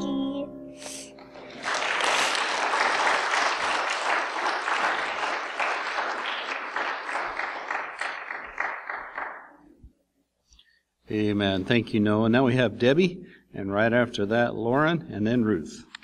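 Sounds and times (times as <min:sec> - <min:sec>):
congregation applauding: 0:01.3 - 0:09.6.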